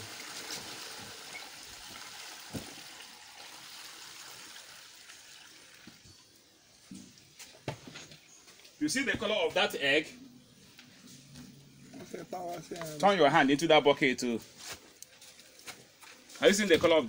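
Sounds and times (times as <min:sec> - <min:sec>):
eggs trickling wet hiss: 0:00.0 - 0:06.8.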